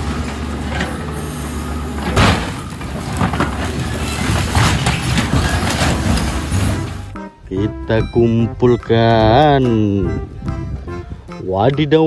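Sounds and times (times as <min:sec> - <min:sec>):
metal crunching and clanking: 0:00.0 - 0:07.2
grapple slamming onto bus: 0:02.0 - 0:07.1.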